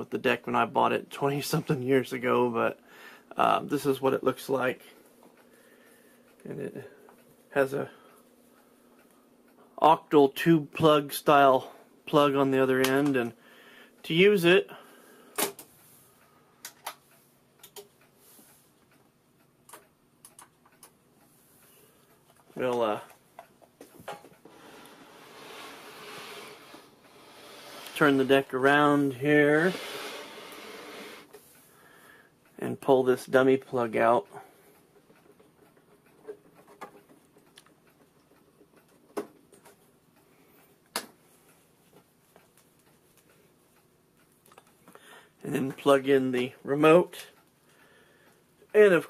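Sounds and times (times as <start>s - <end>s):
sharp clicks: 18.9s - 21.0s.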